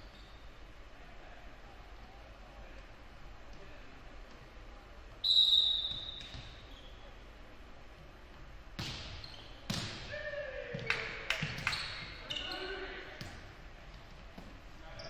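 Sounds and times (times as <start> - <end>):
referee's whistle blast: 5.2 - 6.3
volleyball hits echoing: 8.7 - 12.1.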